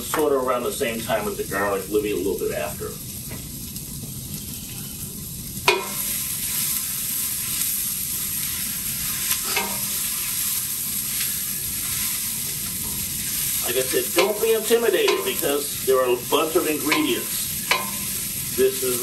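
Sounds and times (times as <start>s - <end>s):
food sizzling in a pot: 0.0s - 19.0s
spatula knocking ringing pot: 5.7s - 6.0s, 9.5s - 9.9s, 14.2s - 15.4s, 16.9s - 18.1s.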